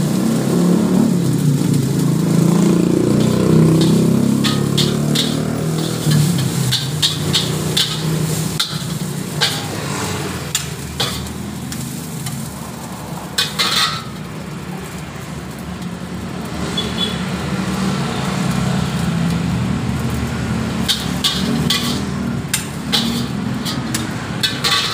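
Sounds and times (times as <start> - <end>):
light sizzle: 0.0 - 24.9
metal spatula scraping a wok: 3.1 - 12.5, 13.3 - 14.3, 20.8 - 24.9.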